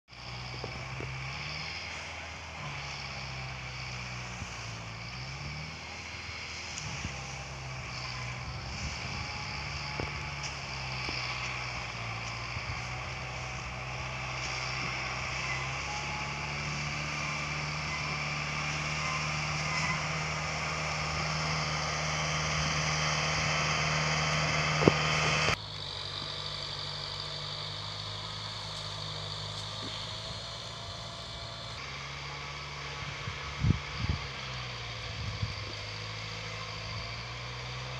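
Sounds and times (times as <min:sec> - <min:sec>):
tractor diesel engine running: 0:00.0 - 0:37.9.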